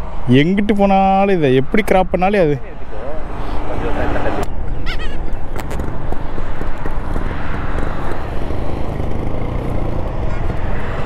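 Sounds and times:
wind rushing on microphone: 0.0s - 11.0s
motorcycle engine running: 5.5s - 11.0s.

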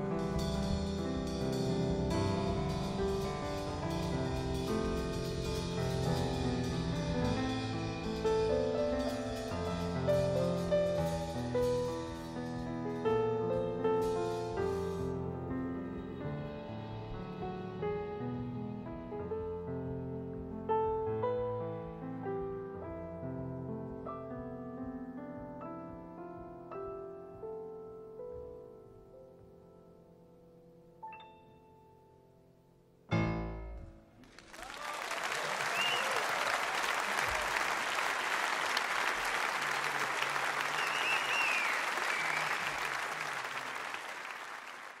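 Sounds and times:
jazz piano chords: 0.0s - 34.2s
audience applauding: 34.2s - 45.0s
short high whistles: 35.7s - 36.3s, 40.6s - 42.9s.

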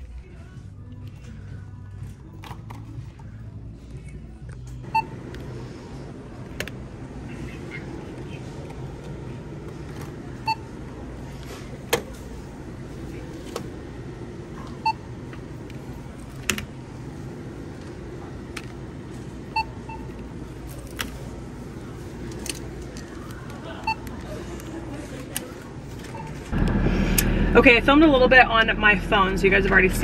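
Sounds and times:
low background hum: 0.0s - 30.0s
short electronic beeps: 4.9s - 5.2s.

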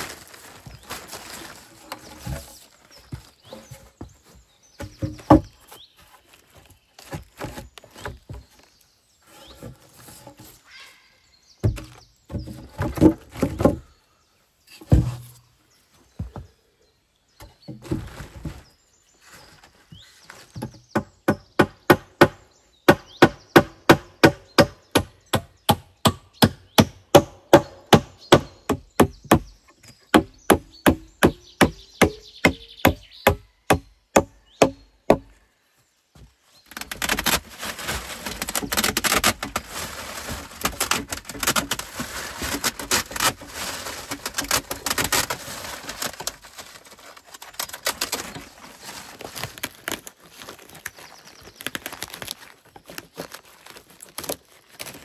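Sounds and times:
plastic tarp crackling rustle: 0.0s - 3.0s, 36.7s - 55.0s
heavy thuds of logs: 1.9s - 5.6s, 14.8s - 15.4s.

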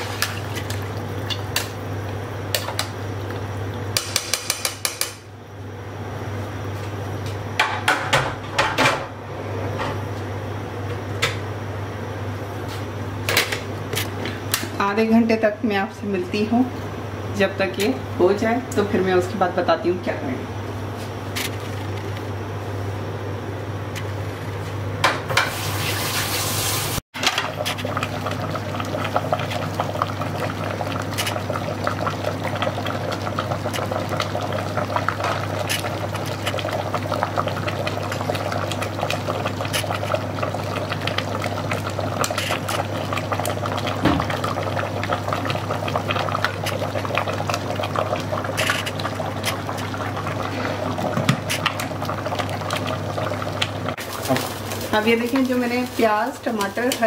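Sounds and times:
ladle stirring liquid: 0.0s - 4.0s, 27.4s - 54.8s
broth boiling and bubbling: 0.0s - 8.7s, 25.4s - 57.0s.

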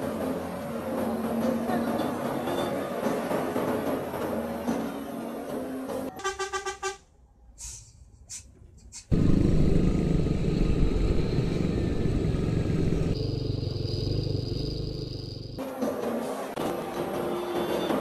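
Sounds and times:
road rumble: 8.0s - 15.6s
vehicle engine: 9.1s - 17.0s.

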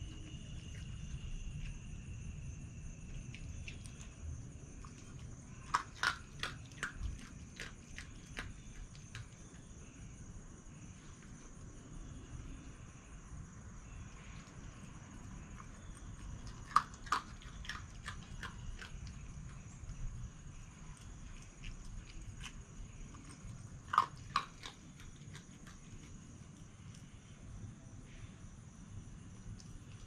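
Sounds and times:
fox crunching dry food: 3.0s - 9.8s, 14.1s - 27.1s.

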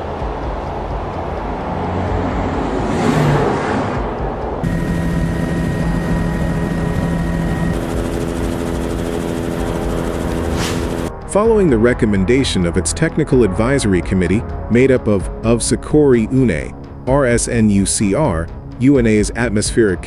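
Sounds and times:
aircraft engine drone: 4.2s - 11.3s.

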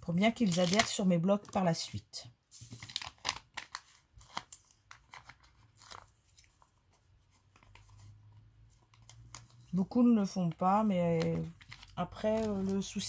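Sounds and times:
paper handling: 2.5s - 9.9s, 10.5s - 13.0s.

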